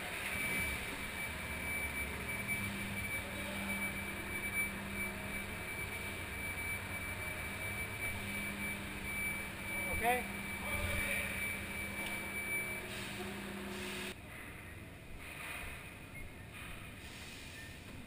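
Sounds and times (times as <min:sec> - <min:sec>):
thin high whine: 0:00.0 - 0:14.2
ferry engines droning: 0:00.0 - 0:18.0.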